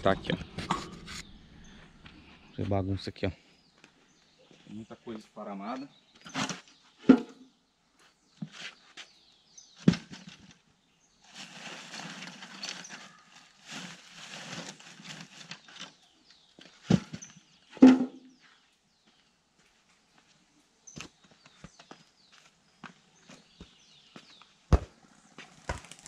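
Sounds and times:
rustling and scraping: 0:00.0 - 0:02.8, 0:06.1 - 0:07.4, 0:08.0 - 0:18.6
objects dropped into buckets: 0:16.8 - 0:18.2.

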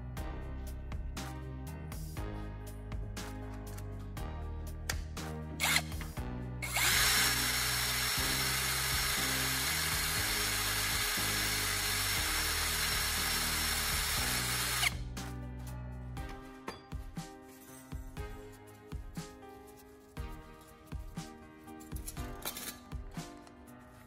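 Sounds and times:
background music with bass line: 0:00.0 - 0:24.0
handheld power tool running: 0:05.6 - 0:05.9, 0:06.6 - 0:15.0.

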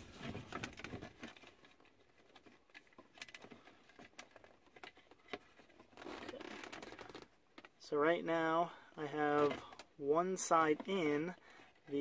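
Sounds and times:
plastic parts clicking: 0:00.5 - 0:07.8.

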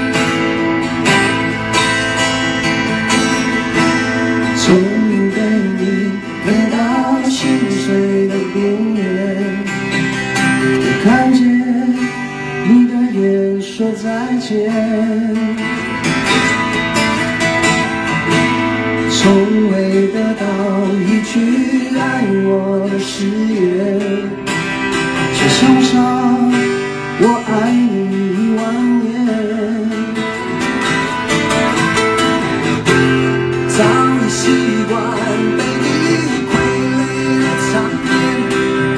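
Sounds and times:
acoustic guitars playing: 0:00.0 - 0:38.9
man singing: 0:04.3 - 0:10.1, 0:10.8 - 0:15.8, 0:19.0 - 0:30.5, 0:33.3 - 0:38.9.

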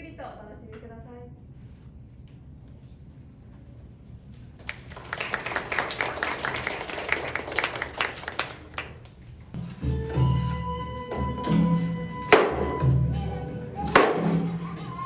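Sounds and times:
audience clapping: 0:04.6 - 0:09.5.

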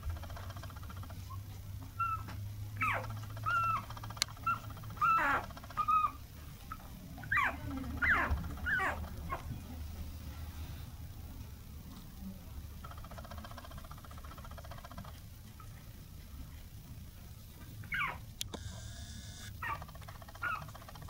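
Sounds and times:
puppy whimpering: 0:01.2 - 0:09.6, 0:17.8 - 0:20.8
low steady hum: 0:15.3 - 0:21.0.

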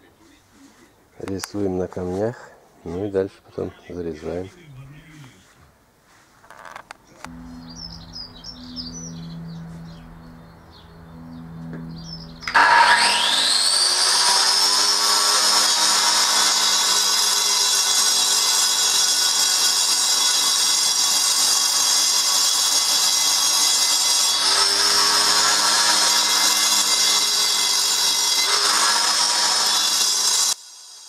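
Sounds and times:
angle grinder cutting paving slab: 0:11.5 - 0:31.0.

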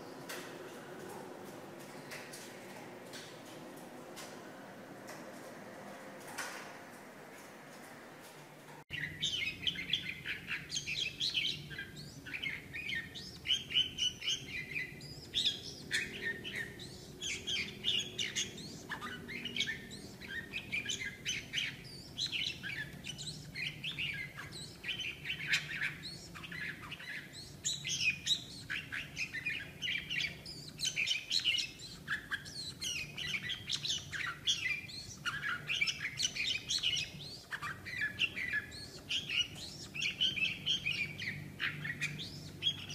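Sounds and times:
bird singing quick chirping phrases: 0:08.9 - 0:42.9.

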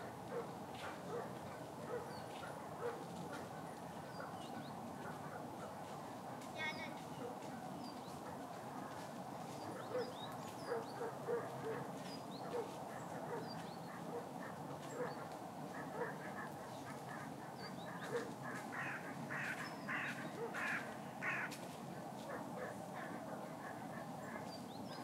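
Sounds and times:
small birds chirping: 0:00.3 - 0:05.9, 0:09.4 - 0:21.5, 0:22.3 - 0:25.0
waterfowl calling: 0:15.8 - 0:21.5.

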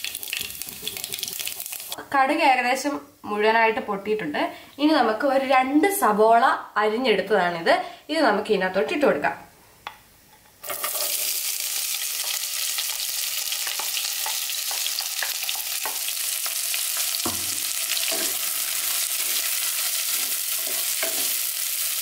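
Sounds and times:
onions sizzling in hot oil: 0:00.0 - 0:02.0, 0:10.6 - 0:22.0
wooden spatula scraping pot: 0:17.4 - 0:21.5.

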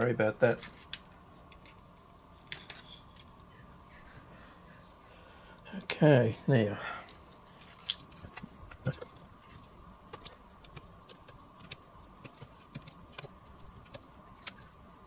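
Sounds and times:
small parts clicking and tapping: 0:00.0 - 0:04.2, 0:07.1 - 0:14.8
faint steady hum: 0:00.0 - 0:15.0.

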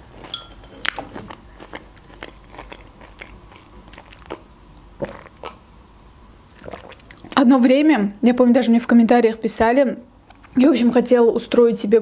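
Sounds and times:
person chewing food: 0:00.0 - 0:05.6, 0:06.5 - 0:07.4
sip from a mug: 0:06.6 - 0:07.3.

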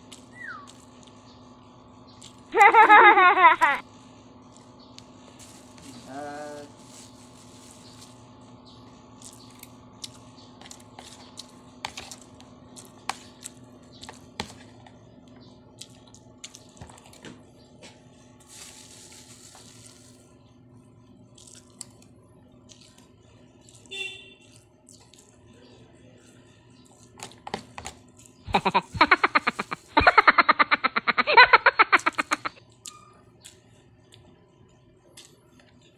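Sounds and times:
steady low hum: 0:00.0 - 0:35.9
plastic bag rustling: 0:05.3 - 0:08.2, 0:18.4 - 0:20.3
chewing: 0:09.1 - 0:17.2, 0:21.3 - 0:25.6, 0:26.2 - 0:28.4, 0:32.6 - 0:34.3, 0:35.1 - 0:35.9.

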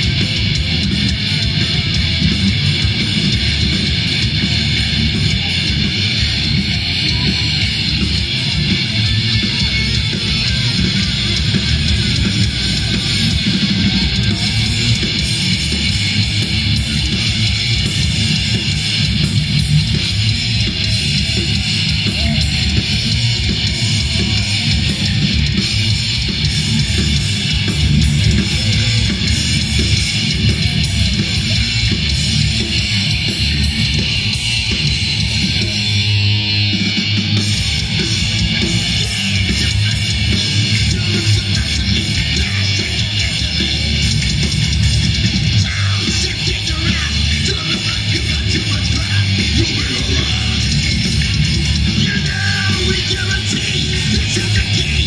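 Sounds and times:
metal band playing live: 0:00.0 - 0:55.0.

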